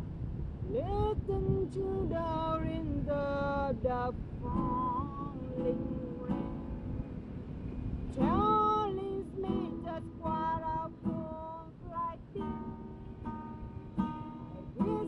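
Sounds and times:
woman singing: 0.7 - 6.6, 8.2 - 13.2, 14.6 - 15.0
strummed acoustic guitar: 0.7 - 15.0.

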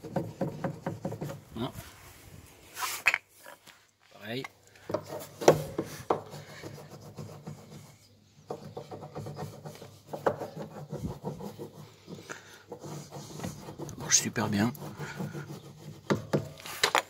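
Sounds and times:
wax rubbing on wood: 5.0 - 8.0, 8.6 - 16.8.

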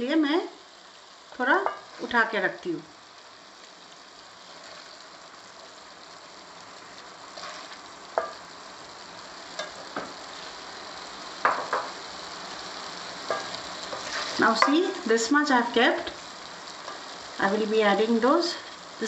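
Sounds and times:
curry sizzling in a pan: 0.0 - 19.0
spatula scraping and knocking pan: 1.6 - 2.0, 7.4 - 8.4, 11.4 - 12.0, 13.2 - 14.8.

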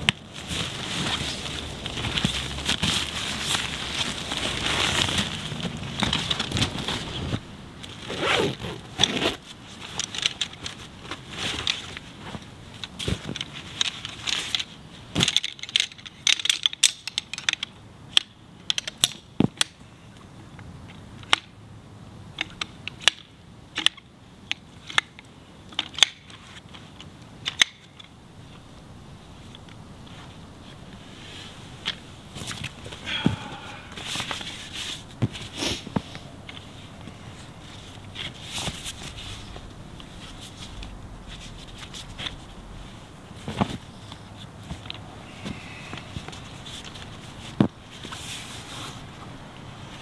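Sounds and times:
nylon pad crinkling: 0.1 - 14.7.

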